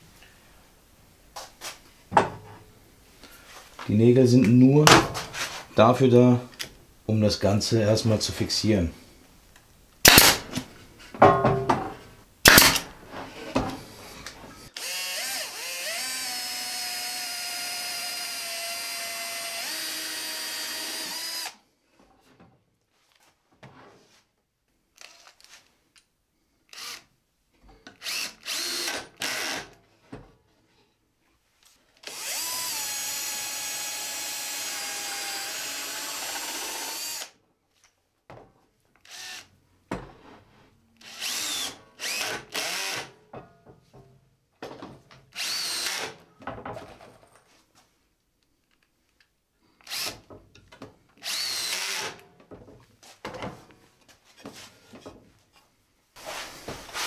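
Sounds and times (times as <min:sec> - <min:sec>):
cordless drill driving screws: 0:10.0 - 0:10.6, 0:12.5 - 0:12.9, 0:14.2 - 0:21.6, 0:25.0 - 0:25.6, 0:26.7 - 0:27.1, 0:28.0 - 0:29.7, 0:32.0 - 0:37.4, 0:39.0 - 0:39.5, 0:41.0 - 0:43.1, 0:45.3 - 0:46.2, 0:49.8 - 0:50.3, 0:51.2 - 0:52.2.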